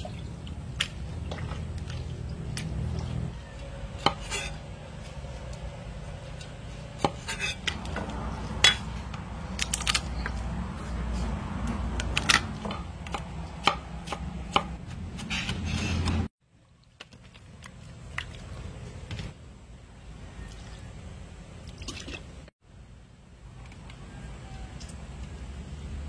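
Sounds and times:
knife chopping on wooden board: 7.0s - 8.8s, 11.6s - 16.3s.

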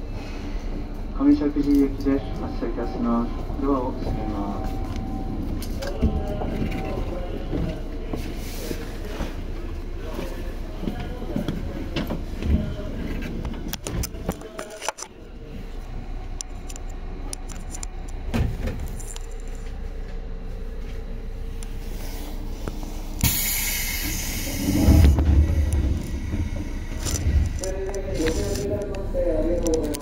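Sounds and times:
heavy low rumble: 0.0s - 30.0s
loud hiss: 23.2s - 25.2s
train wheels rolling: 23.2s - 30.0s.

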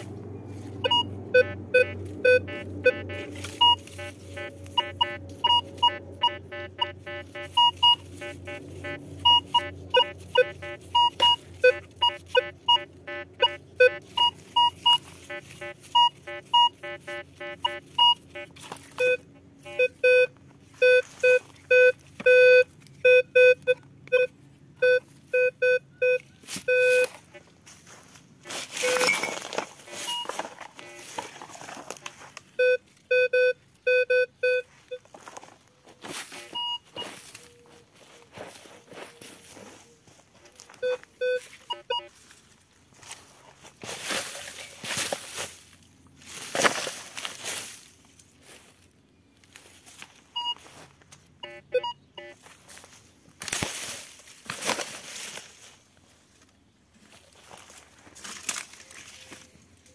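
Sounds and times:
metal detector beeping: 0.8s - 27.5s, 28.4s - 31.4s, 32.5s - 35.1s, 36.2s - 37.8s, 40.6s - 42.2s, 50.4s - 50.7s, 51.4s - 52.4s.

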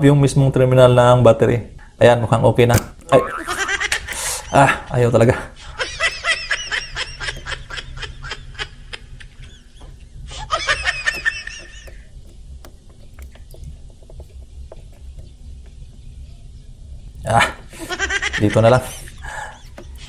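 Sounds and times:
clamps clicking on battery: 9.8s - 15.3s.

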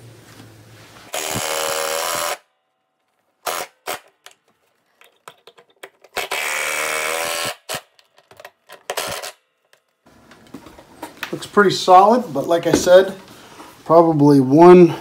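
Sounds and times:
impact driver driving screws into wood: 1.1s - 2.4s, 3.4s - 4.5s, 5.2s - 9.4s.

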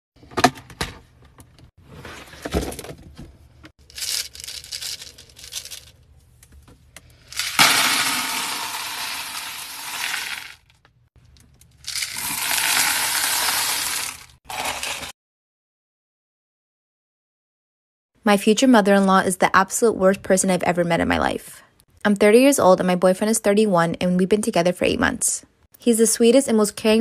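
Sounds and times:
wax beads pouring into plastic bin: 3.8s - 5.9s, 7.3s - 10.6s, 11.8s - 15.1s.

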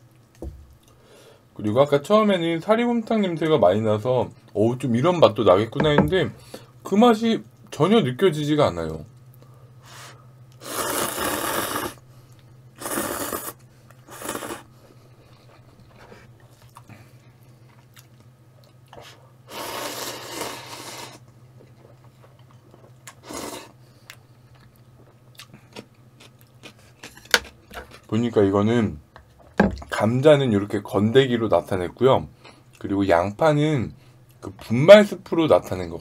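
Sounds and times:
low steady hum: 0.0s - 36.0s
noodles being slurped: 10.6s - 12.0s, 12.8s - 14.7s.

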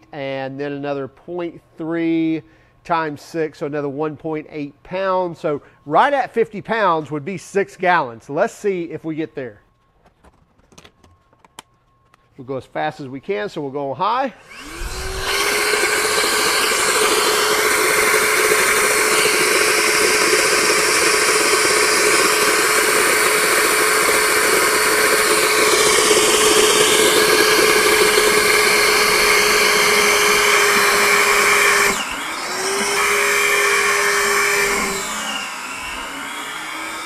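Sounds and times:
wet vacuum motor whine: 14.4s - 37.0s.

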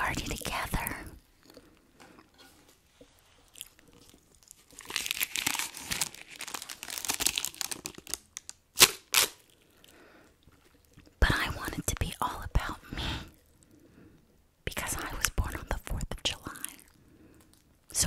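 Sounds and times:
paper party blower crinkling: 4.8s - 9.4s.

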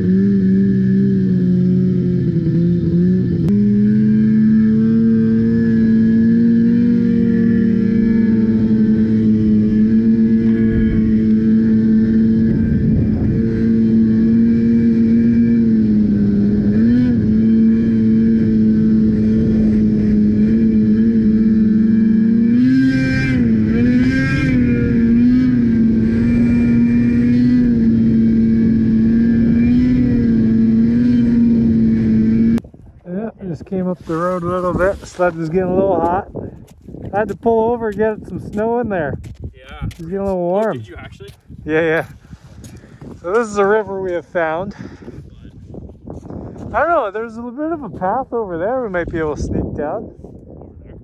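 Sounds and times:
snowmobile engine running hard: 0.0s - 32.6s.

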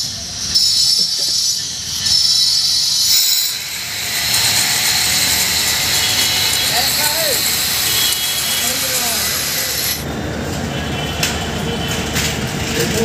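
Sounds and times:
stone scraping hiss: 0.5s - 10.0s
thin whine: 0.5s - 10.0s.

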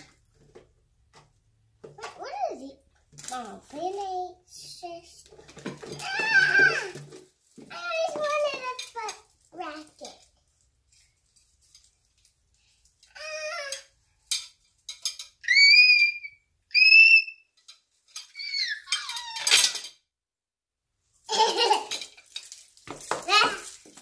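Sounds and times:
girl squealing with delight: 15.4s - 17.4s.

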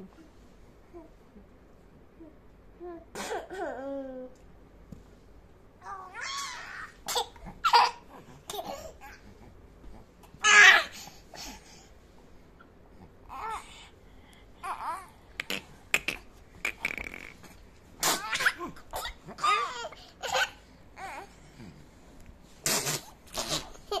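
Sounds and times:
young children laughing and babbling: 5.8s - 9.3s, 18.0s - 21.3s.

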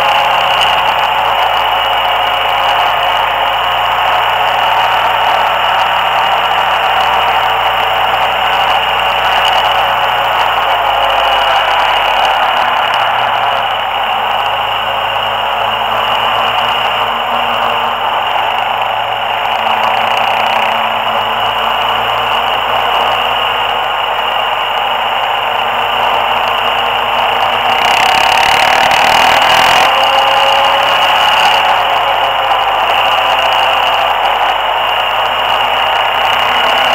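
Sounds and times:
steady high tone: 0.0s - 36.9s
wind and road noise: 0.0s - 36.9s.

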